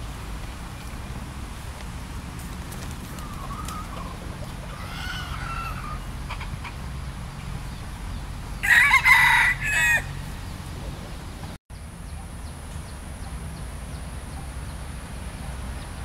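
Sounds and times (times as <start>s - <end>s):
rooster crowing: 4.7s - 6.1s, 8.6s - 10.4s.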